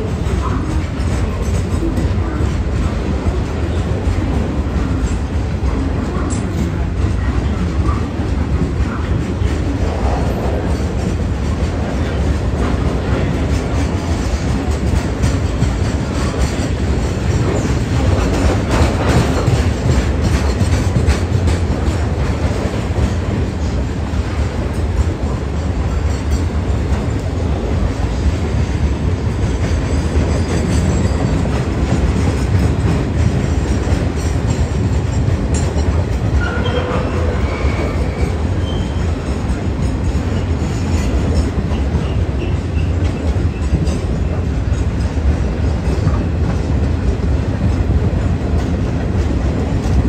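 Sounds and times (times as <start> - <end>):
wheels rumbling and clattering on rail: 0.0 - 50.0
wheel squeals: 36.4 - 39.1.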